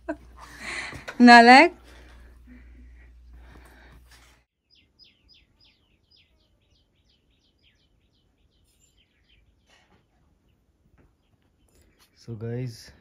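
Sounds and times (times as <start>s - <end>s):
bird singing faintly: 4.6s - 12.4s.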